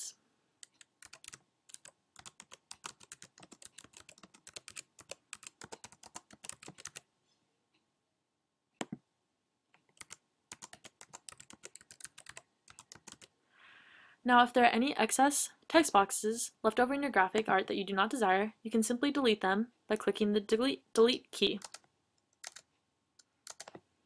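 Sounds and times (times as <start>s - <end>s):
typing on computer keyboard: 0.6s - 7.1s, 9.8s - 13.3s, 21.6s - 22.7s, 23.4s - 23.8s.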